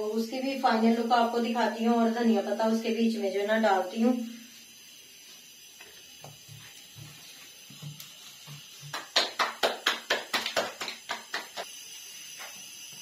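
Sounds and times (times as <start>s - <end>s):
hands slapping dough: 8.8s - 11.6s.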